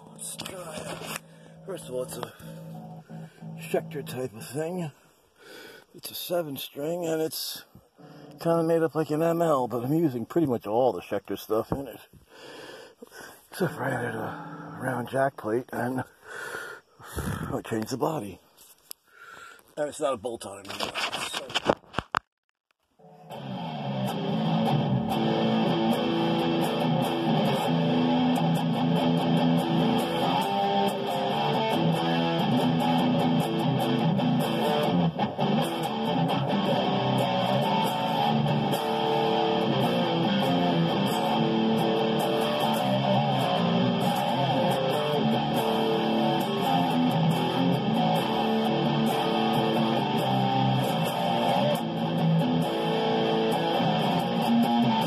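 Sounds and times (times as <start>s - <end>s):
electric guitar riff: 0.0s - 4.9s, 8.0s - 9.6s, 13.6s - 15.2s, 23.0s - 55.0s.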